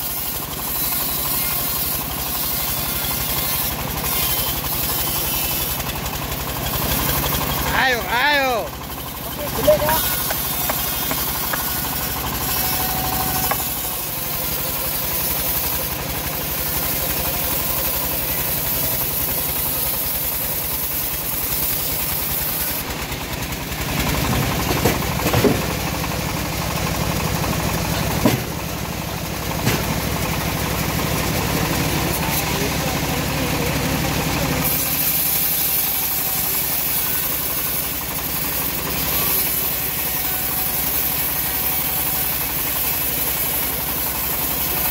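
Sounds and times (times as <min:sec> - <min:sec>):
sawmill engine running: 0:00.0 - 0:44.9
heavy timber knocks: 0:24.7 - 0:25.7.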